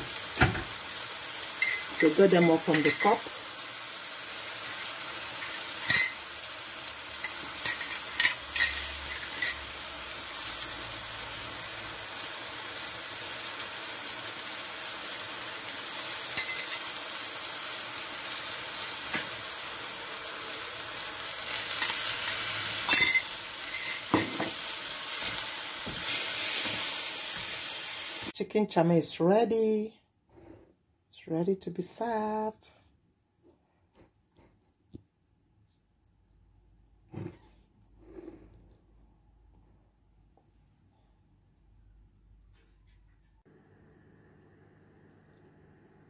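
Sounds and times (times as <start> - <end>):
noodles sizzling in a wok: 0.0 - 28.4.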